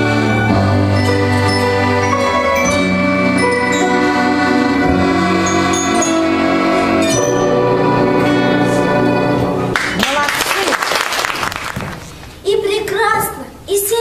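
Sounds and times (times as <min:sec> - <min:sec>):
accordion: 0:00.0 - 0:09.7
piano: 0:00.0 - 0:10.0
metallophones struck with mallets: 0:01.0 - 0:08.7.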